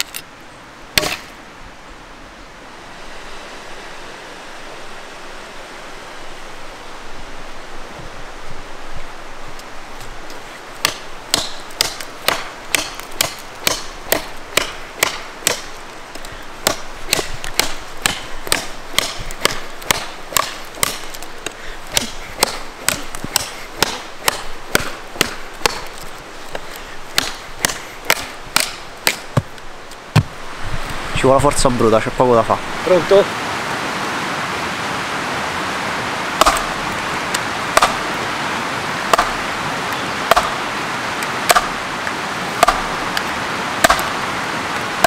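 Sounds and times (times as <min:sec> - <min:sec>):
knife chopping wood: 0:01.0 - 0:01.3, 0:10.8 - 0:30.4, 0:36.4 - 0:36.8, 0:37.7 - 0:38.1, 0:39.1 - 0:39.4, 0:40.3 - 0:40.6, 0:41.5 - 0:41.8, 0:42.6 - 0:42.9, 0:43.8 - 0:44.2.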